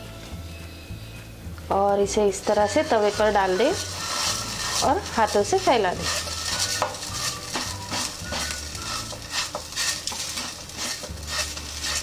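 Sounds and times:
fingers patting dough on pan: 3.6s - 12.0s.

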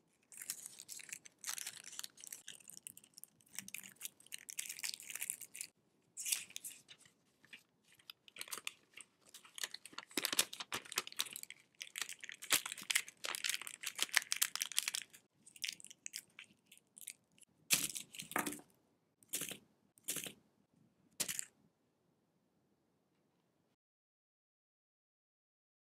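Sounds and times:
candy wrapper paper crinkling: 0.1s - 18.6s, 21.2s - 21.5s.

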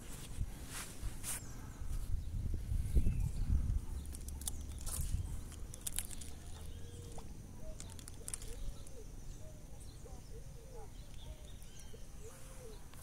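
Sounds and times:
low rumble of microphone handling: 0.0s - 5.7s
faint bird calls: 0.8s - 13.0s.

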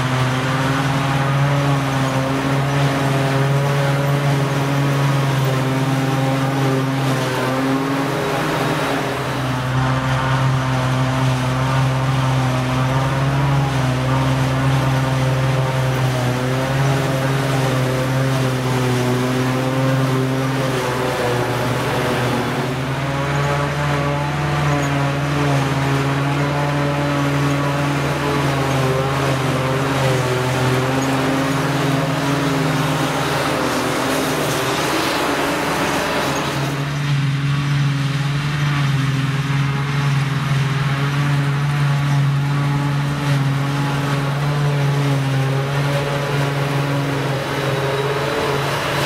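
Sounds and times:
forage harvester engine droning: 0.0s - 49.0s
tractor driving: 0.0s - 49.0s.

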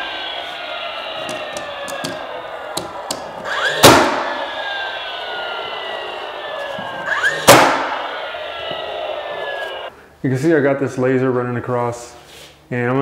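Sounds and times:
nail gun shot crack: 3.8s - 4.2s.

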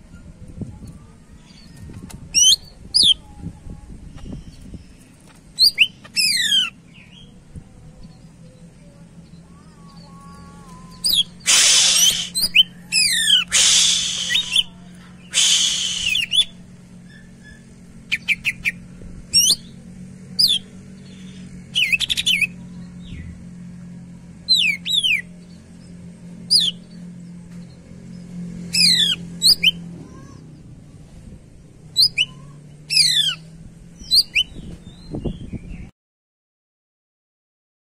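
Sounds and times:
harsh rasping bird calls: 4.1s - 7.4s, 9.3s - 23.7s, 24.3s - 30.8s, 31.9s - 35.1s
bird whistled notes and chatter: 5.6s - 7.3s, 10.0s - 18.8s, 20.4s - 23.2s, 26.5s - 26.8s, 28.7s - 29.9s, 32.0s - 33.4s, 34.0s - 35.9s.

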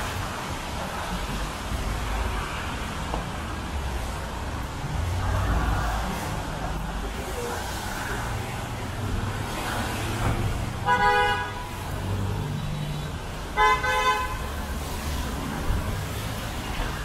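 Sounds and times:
city traffic rumble: 0.0s - 17.0s
car horn honking: 10.8s - 11.8s, 13.0s - 14.5s.

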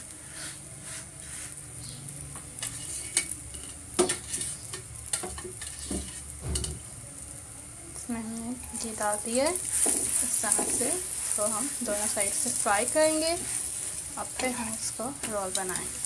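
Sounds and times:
flatbread sizzling in pan: 0.0s - 16.0s
metal spatula scraping pan: 2.6s - 6.3s, 8.7s - 16.0s.

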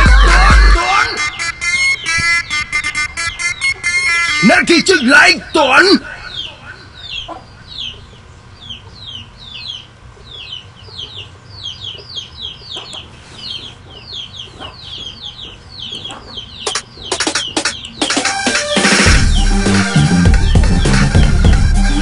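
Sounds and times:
birds chirping: 0.0s - 22.0s
sharp knocks: 16.7s - 19.4s.

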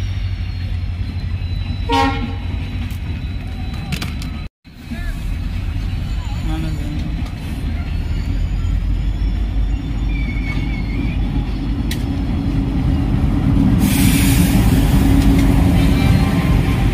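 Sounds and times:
high wheel squeal: 0.0s - 13.1s
diesel locomotive engine drone: 0.0s - 16.9s
train rumbling: 0.0s - 16.9s.

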